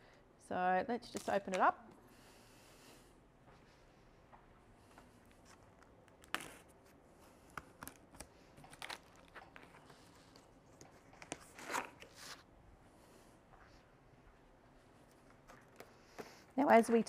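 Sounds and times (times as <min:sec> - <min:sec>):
packing tape tearing: 0:11.2 - 0:12.4.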